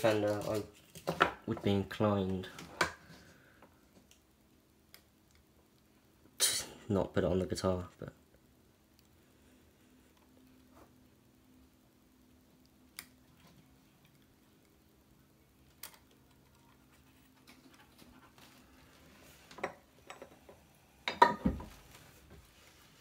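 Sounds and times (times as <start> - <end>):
faint steady hum: 0.0 - 23.0
rustling: 21.6 - 23.0.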